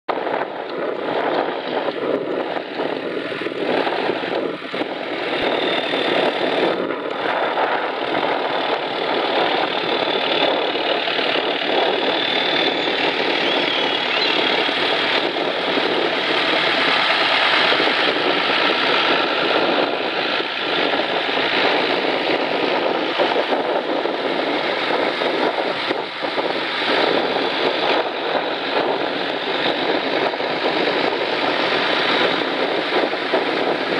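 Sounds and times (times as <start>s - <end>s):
tractor engines driving past: 0.2s - 33.9s.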